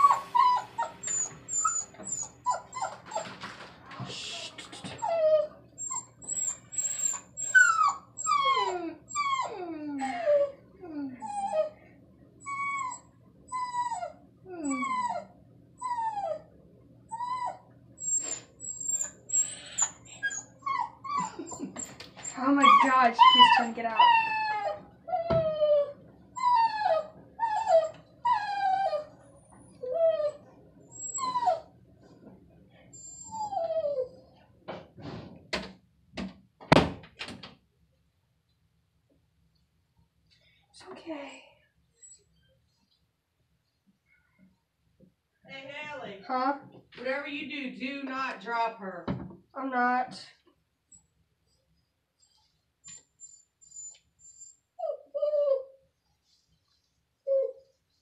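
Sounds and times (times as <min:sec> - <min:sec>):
puppy squealing and whining: 0:00.0 - 0:03.4, 0:04.9 - 0:10.5, 0:12.4 - 0:16.5, 0:17.1 - 0:31.7, 0:32.9 - 0:34.3, 0:52.8 - 0:55.8, 0:57.3 - 0:57.7.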